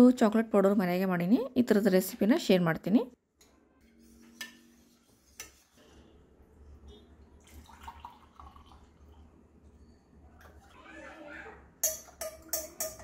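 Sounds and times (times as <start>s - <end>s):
utensils knocking: 11.8s - 13.0s.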